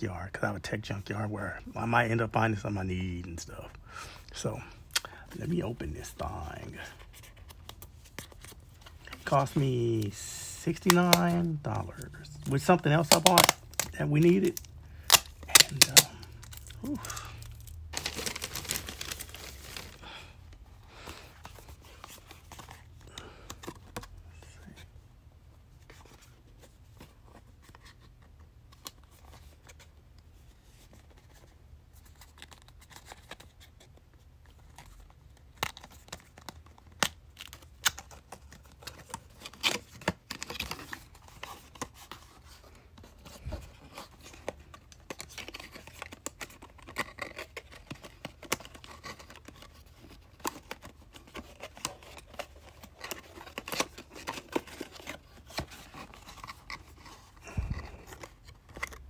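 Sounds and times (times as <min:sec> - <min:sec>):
cardboard tearing: 0:12.2 - 0:20.1, 0:36.9 - 0:59.0.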